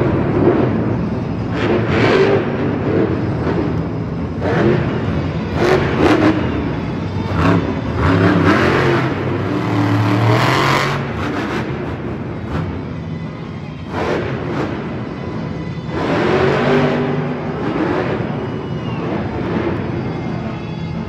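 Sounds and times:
monster truck engine revving: 0.0 - 13.2, 13.8 - 21.0.

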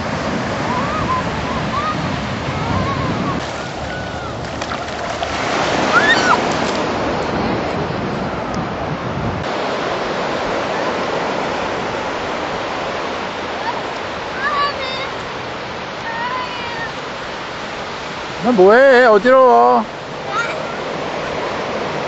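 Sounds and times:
ocean surf on beach: 0.0 - 22.0
faint high calls: 5.8 - 6.5.

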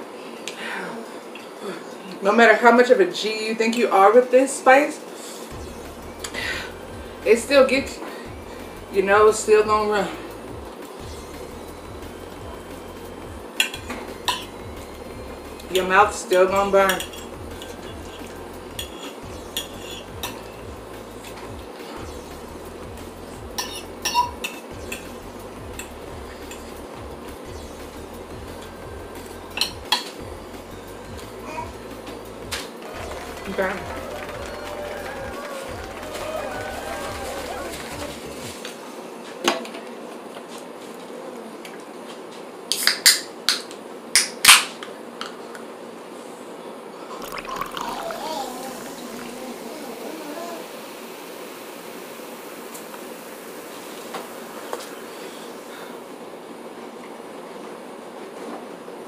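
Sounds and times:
metal fork clinking on a plate: 16.9 - 20.6, 23.6 - 25.1.

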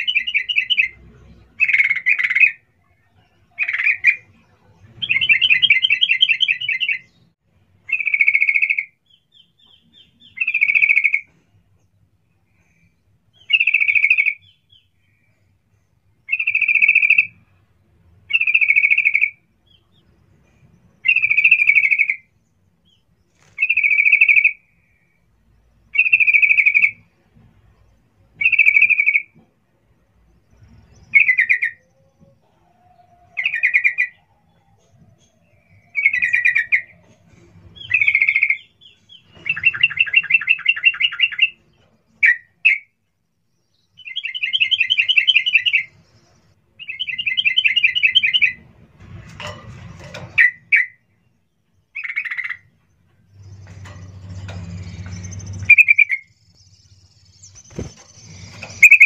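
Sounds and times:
bird singing: 0.0 - 17.6, 18.2 - 27.2, 27.8 - 48.6, 50.3 - 59.0.

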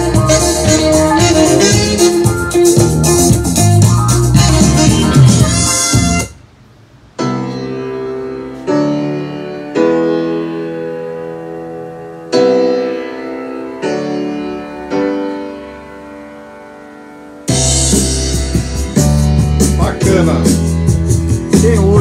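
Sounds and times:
loud music from speakers: 0.0 - 6.4, 16.8 - 22.0
slow keyboard chords: 0.0 - 22.0.

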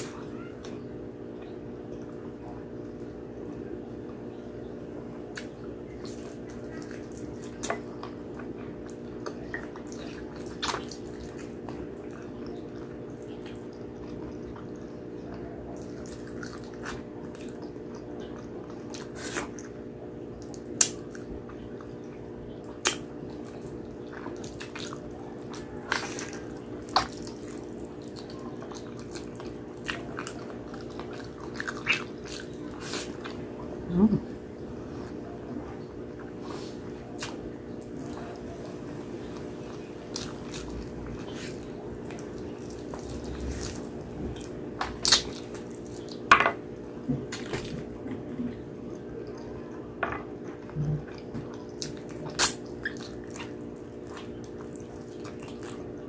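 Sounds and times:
person chewing: 5.1 - 56.0
lip smacks: 5.3 - 8.2, 22.8 - 23.6, 36.2 - 38.5, 50.6 - 55.9.

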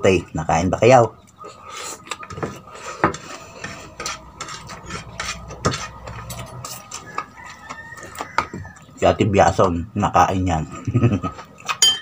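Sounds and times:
chewing: 1.2 - 9.0, 10.6 - 11.8.

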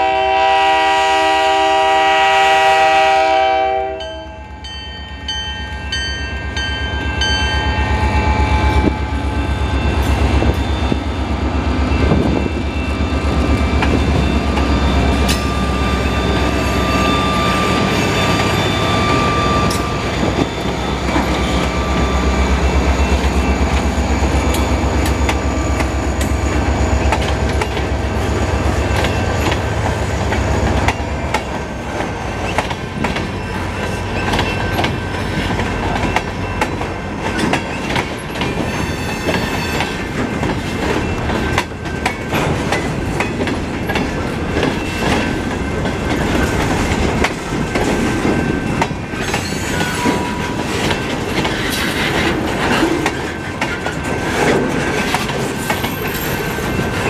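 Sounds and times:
locomotive horn: 0.0 - 4.4
diesel locomotive engine under load: 0.0 - 57.0.

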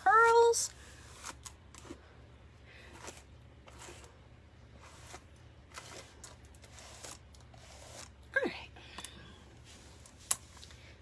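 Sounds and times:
low steady hum: 0.0 - 11.0
soft brushing strokes: 9.3 - 11.0.

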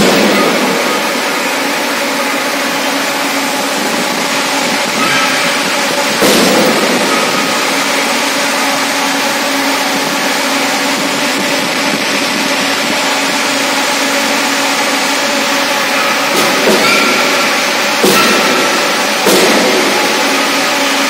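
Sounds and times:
forging hammer blow: 0.0 - 11.2, 15.7 - 21.0
machinery running: 0.0 - 21.0.

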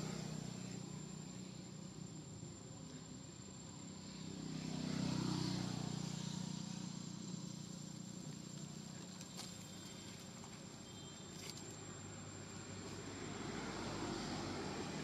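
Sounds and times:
vehicle passing: 3.9 - 8.2, 13.0 - 15.0.

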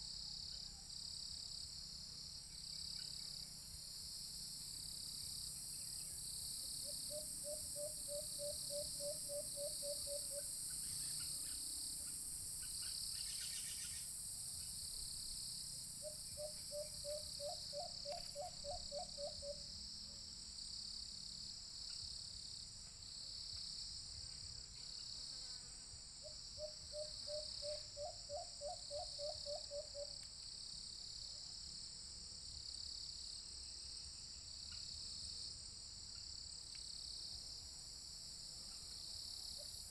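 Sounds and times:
insects buzzing: 0.0 - 39.9
dove hooting calls: 6.8 - 10.5, 16.0 - 19.6, 26.6 - 30.1.

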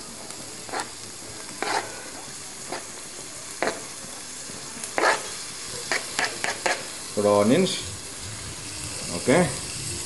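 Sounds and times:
onions sizzling in oil: 0.0 - 10.0
spoon scraping a pan: 0.6 - 3.0, 4.9 - 7.0.

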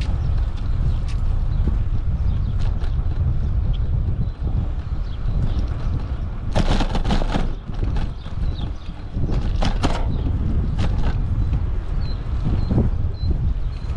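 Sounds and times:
bicycle rattling over bumps: 0.0 - 13.9
wind rumbling on microphone: 0.0 - 13.9.

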